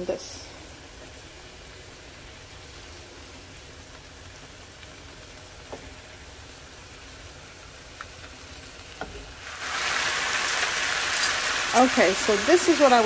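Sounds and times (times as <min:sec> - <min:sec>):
loud frying sizzle: 0:00.0 - 0:13.0
meat simmering bubbling hiss: 0:00.0 - 0:13.0.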